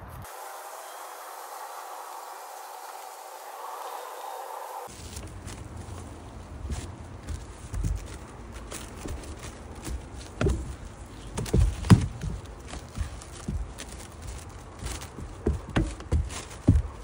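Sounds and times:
plastic film thumps and crackles: 7.7s - 17.0s.

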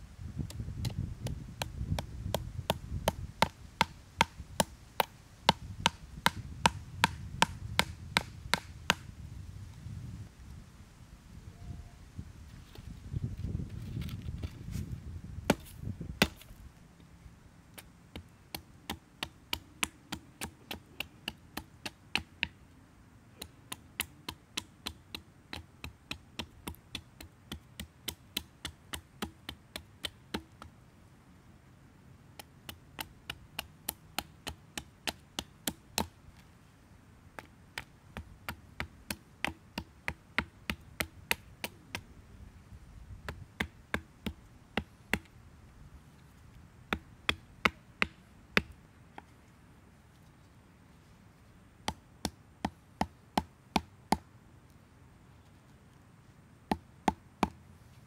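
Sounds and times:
hatchet striking wood: 0.8s - 9.0s, 15.5s - 16.5s, 18.1s - 22.6s, 23.4s - 30.6s, 32.4s - 36.2s, 37.4s - 42.0s, 43.3s - 45.3s, 46.9s - 48.8s.

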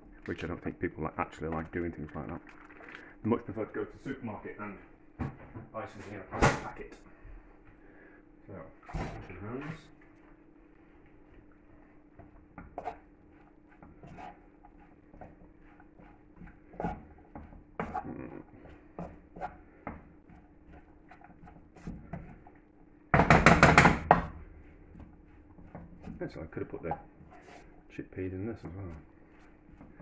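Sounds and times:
kitchen knocks and clicks: 23.1s - 24.4s.

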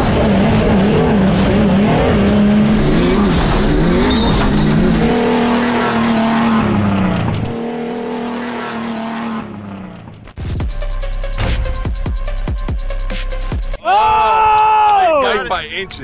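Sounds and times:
off-road truck engines racing: 0.0s - 10.4s.

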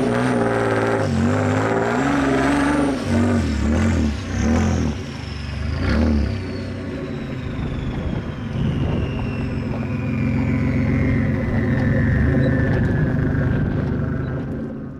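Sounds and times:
engine running steadily: 0.0s - 14.9s
high whine: 0.0s - 14.9s.

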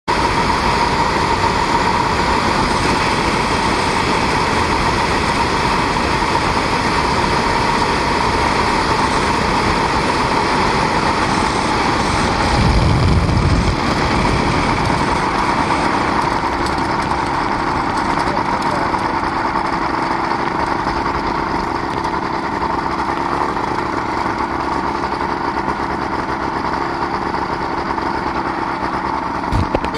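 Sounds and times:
light aircraft engine whining: 0.1s - 29.9s
wind rushing on microphone: 2.2s - 16.2s
low rumble: 9.5s - 18.8s.

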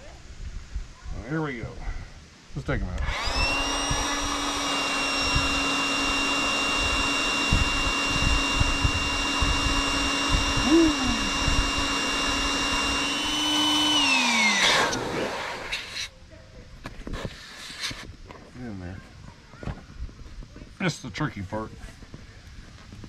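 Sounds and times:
electric air pump whining: 2.9s - 16.1s.

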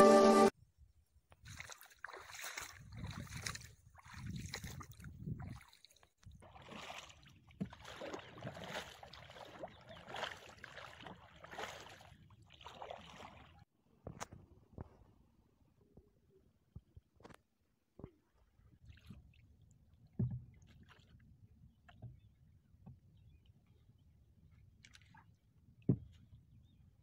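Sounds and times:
paddle splashing in water: 1.4s - 13.7s, 20.2s - 21.2s.

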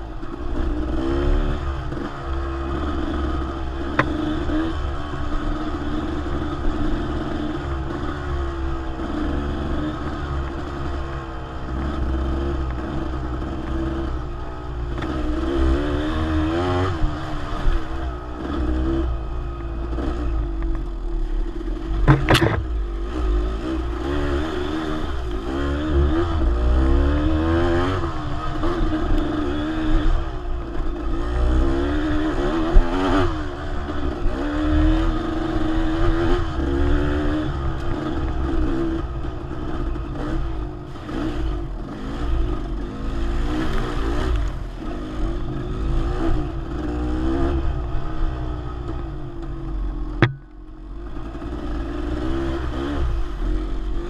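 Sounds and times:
dirt bike engine revving: 0.0s - 54.0s
sharp knock: 22.0s - 22.7s, 50.2s - 50.5s.

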